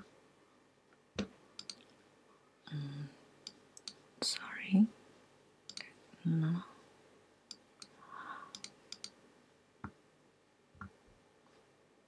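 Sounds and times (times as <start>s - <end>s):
computer mouse clicks: 1.2s - 1.9s, 3.4s - 4.0s, 5.7s - 5.9s, 7.5s - 9.2s.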